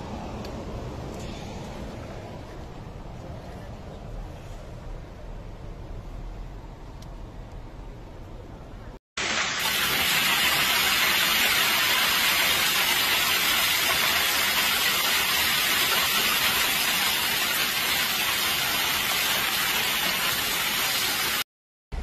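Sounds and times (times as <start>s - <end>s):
hail and rain pouring down: 9.2s - 21.4s.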